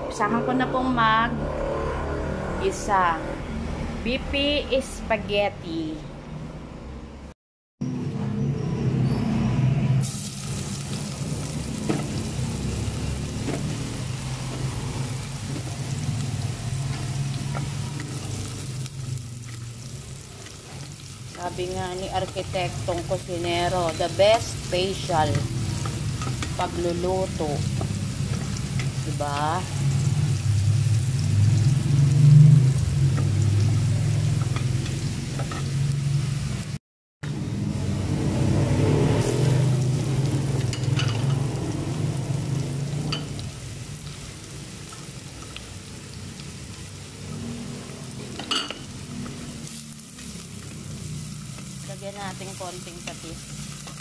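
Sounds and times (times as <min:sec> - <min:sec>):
garlic sizzling in oil: 0:10.0 - 0:36.8, 0:38.5 - 0:54.0.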